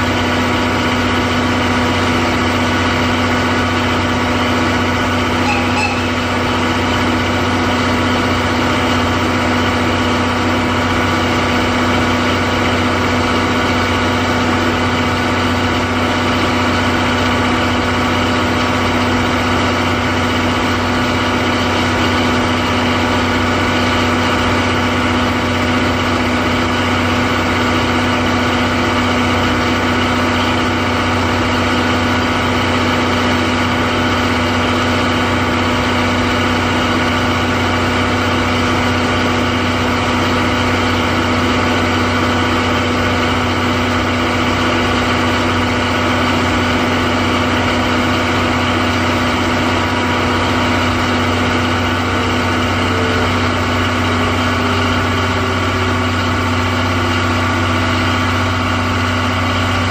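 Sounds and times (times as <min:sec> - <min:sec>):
diesel generator engine humming: 0:00.0 - 0:59.9.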